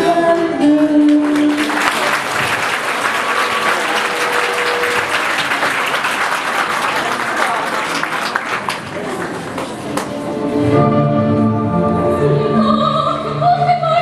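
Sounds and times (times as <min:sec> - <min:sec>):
audience applauding: 0:00.8 - 0:10.2.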